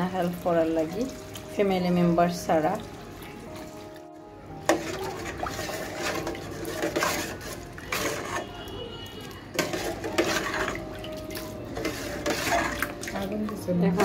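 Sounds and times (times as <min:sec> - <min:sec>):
metal spoon stirring in pot: 0:04.5 - 0:14.0
spoon clinking against pot: 0:04.6 - 0:08.6, 0:09.5 - 0:13.3.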